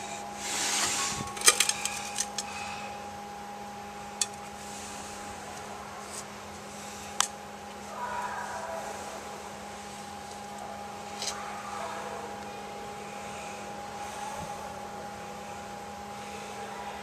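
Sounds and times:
steady electrical hum: 0.0s - 17.0s
metal parts clicking: 0.9s - 2.5s.

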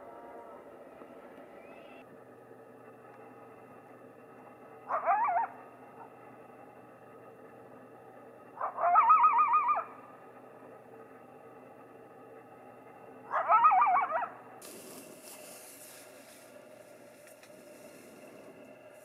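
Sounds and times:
coyote howling: 0.0s - 2.0s, 4.8s - 6.2s, 8.6s - 10.0s, 13.3s - 14.4s.

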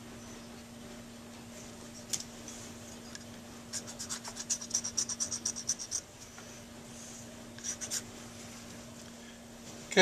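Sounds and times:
hand file scraping: 3.8s - 6.0s.

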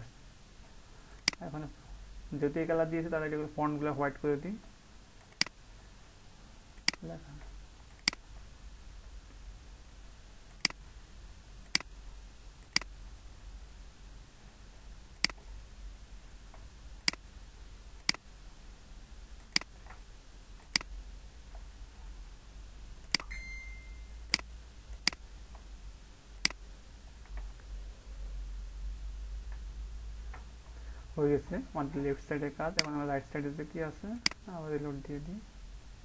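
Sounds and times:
faint low hum: 0.0s - 36.0s
computer mouse clicking: 1.1s - 1.5s, 5.2s - 5.6s, 6.8s - 8.3s, 10.5s - 10.8s, 11.6s - 11.9s, 12.6s - 13.0s, 15.1s - 15.5s, 16.5s - 17.2s, 18.0s - 18.3s, 19.4s - 20.0s, 20.6s - 21.7s, 23.0s - 23.3s, 24.3s - 25.7s, 26.4s - 26.6s.

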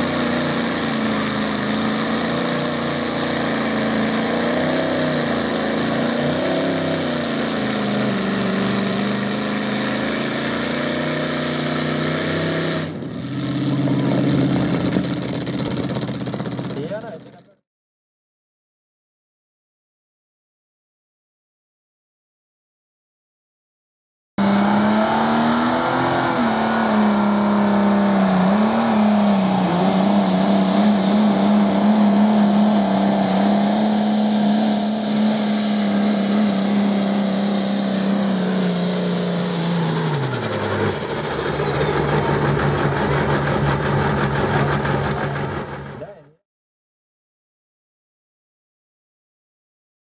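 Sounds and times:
tractor engine at full power: 0.0s - 17.6s, 24.4s - 46.4s.

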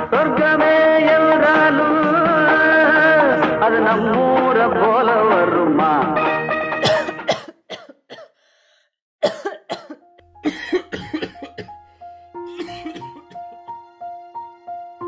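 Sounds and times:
song: 0.0s - 7.4s
person coughing: 6.8s - 8.4s, 9.2s - 11.8s, 12.5s - 13.4s.

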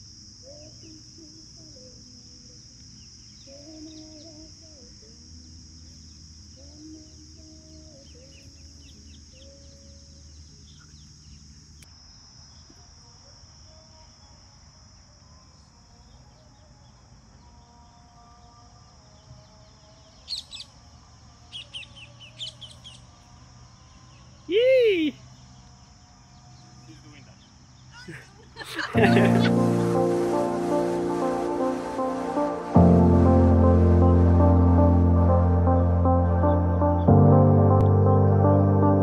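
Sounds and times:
high-pitched insect drone: 0.0s - 37.6s
bird chirping: 0.5s - 4.5s, 5.1s - 11.8s, 18.9s - 30.8s.

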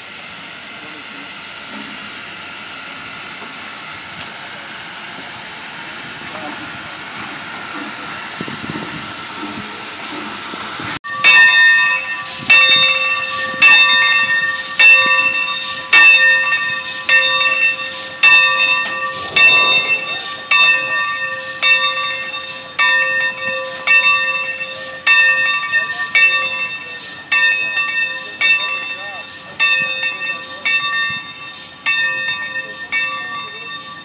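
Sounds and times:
steam hissing from locomotive: 0.0s - 22.8s
locomotive bell ringing: 11.0s - 34.0s.

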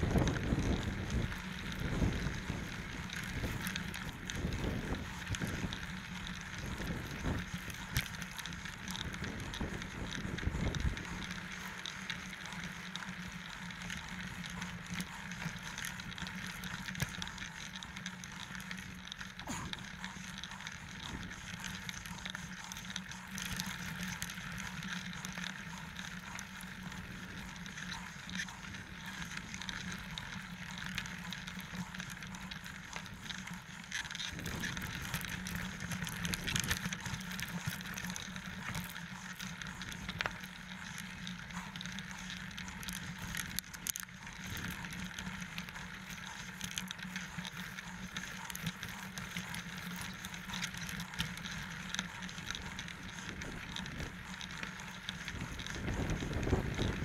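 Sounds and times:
wind buffeting microphone: 0.0s - 8.0s, 8.7s - 11.3s, 34.3s - 37.7s, 55.3s - 57.0s
bike rattling and clicking: 0.0s - 57.0s
bike tyres on dirt and stones: 0.0s - 57.0s.

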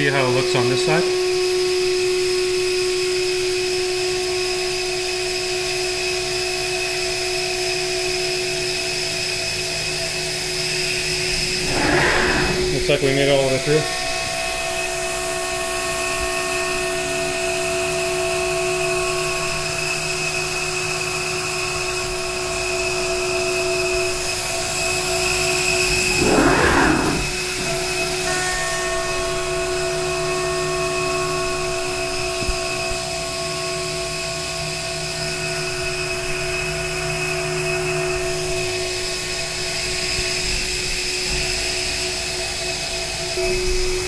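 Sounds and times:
rushing swell of cutting: 11.5s - 13.0s, 26.1s - 27.7s.

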